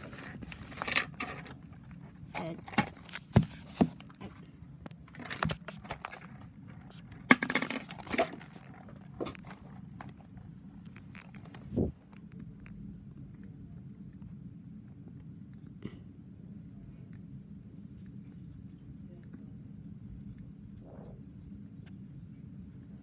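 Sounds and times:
paper rustling: 0.0 - 1.4.

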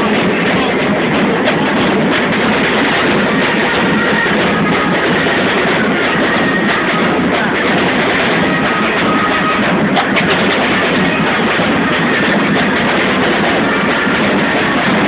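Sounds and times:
crowd cheering: 0.0 - 15.0
drum band beating: 0.0 - 15.0.

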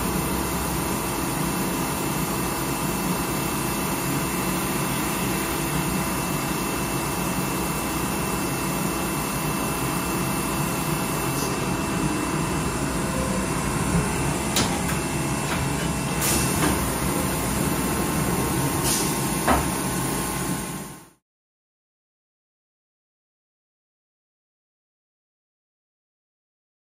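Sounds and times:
machine hum: 0.0 - 21.2.

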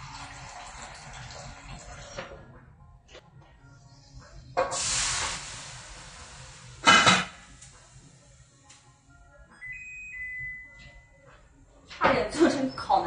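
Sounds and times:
steam hissing from wok: 4.6 - 8.6
range hood beep: 9.6 - 11.2.

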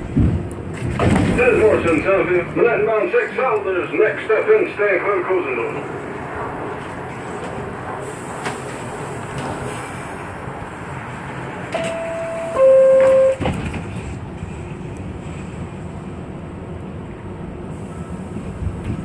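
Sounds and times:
subway train running on track: 0.0 - 19.0
two-note falling signal: 11.8 - 13.4.

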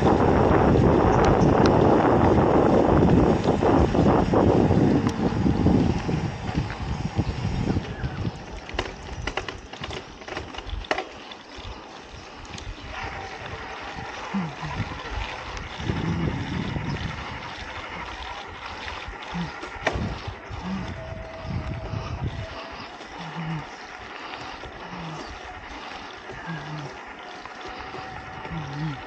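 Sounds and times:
bike clicks and rattles: 0.0 - 29.0
wind buffeting microphone: 0.0 - 29.0
tyres hissing on road: 10.9 - 29.0.

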